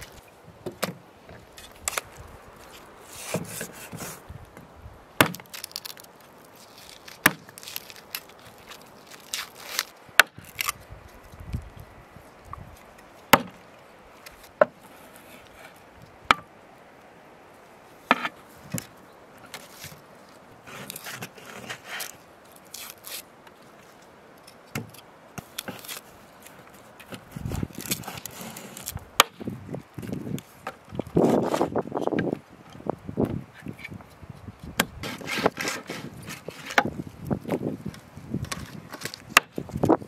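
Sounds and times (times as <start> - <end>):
scraping and handling sounds: 0.0 - 4.3, 18.1 - 29.0, 30.0 - 32.8, 34.9 - 39.9.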